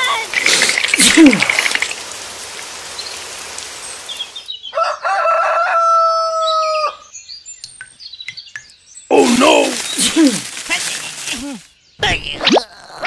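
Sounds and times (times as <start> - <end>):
rooster crowing: 4.7 - 7.0.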